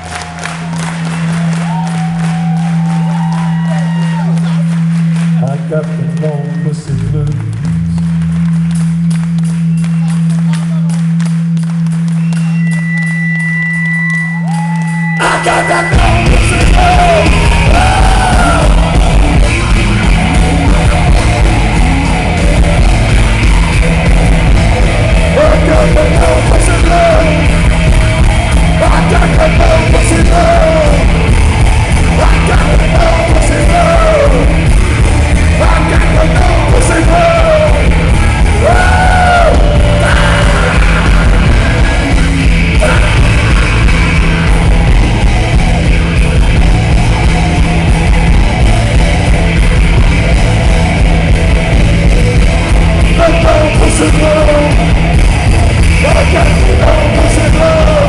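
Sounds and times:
live rock band playing: 8.3s - 58.0s
wailing bending guitar notes: 12.8s - 58.0s.

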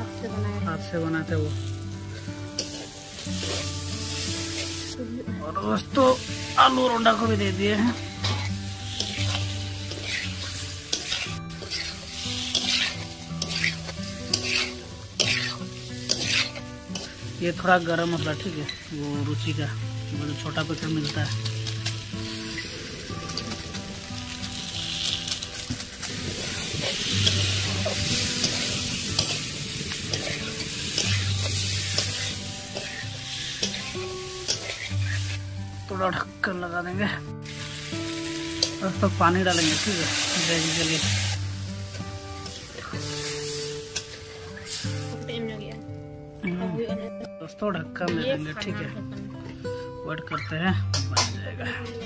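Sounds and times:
frying sizzle: 0.0s - 46.1s
spatula scraping a pan: 2.1s - 4.9s, 8.0s - 17.4s, 21.0s - 35.5s.

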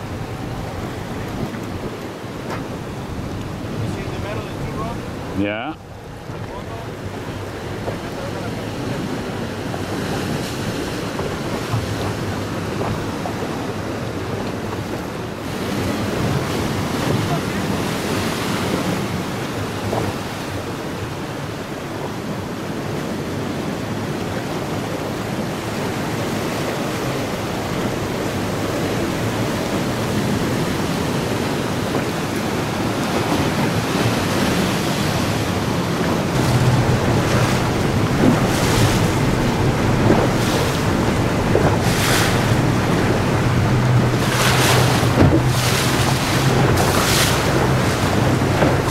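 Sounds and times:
waves breaking against rocks: 0.0s - 48.9s
wind buffeting microphone: 0.0s - 48.9s.

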